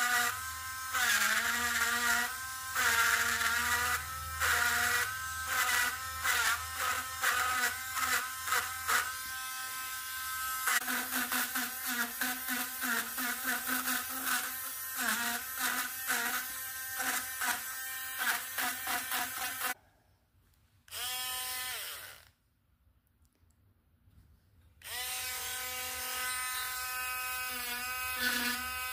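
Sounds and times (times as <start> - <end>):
rotary tool grinding wood: 0.0 - 19.8, 24.8 - 28.9
rotary tool motor whine: 24.8 - 28.9.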